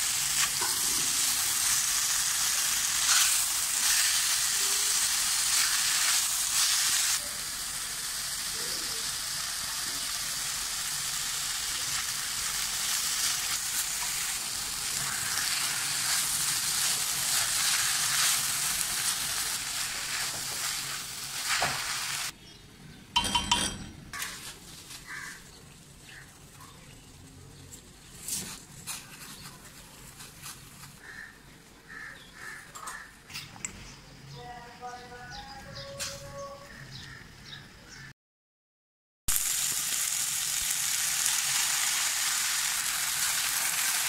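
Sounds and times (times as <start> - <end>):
noodles sizzling in a wok: 0.0 - 22.4, 24.2 - 31.3, 39.3 - 44.0.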